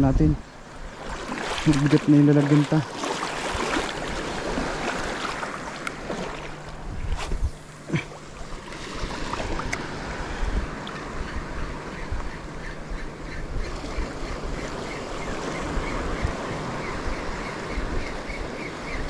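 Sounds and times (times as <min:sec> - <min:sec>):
wind buffeting microphone: 0:00.0 - 0:19.0
seawater splashing around wading feet: 0:00.9 - 0:10.2.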